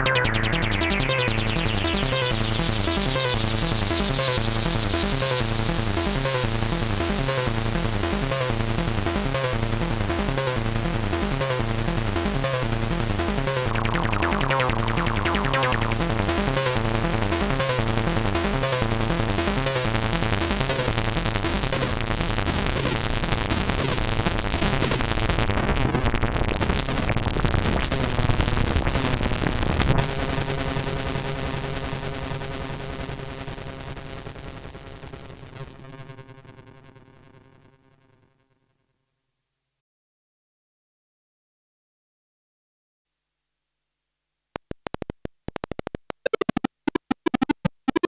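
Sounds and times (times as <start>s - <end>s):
synthesizer bass pattern: 0.0s - 25.0s, 45.7s - 48.0s.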